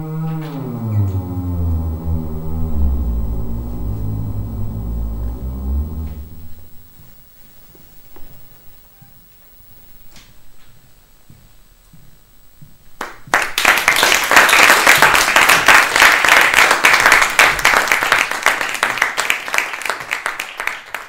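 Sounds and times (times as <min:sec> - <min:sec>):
audience applauding: 0:13.0 - 0:21.0.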